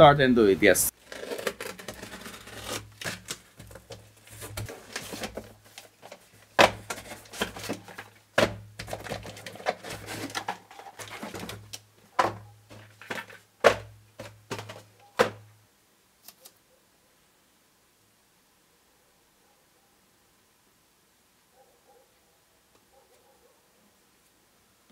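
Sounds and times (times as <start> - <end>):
packaging rustling: 0.9 - 15.4.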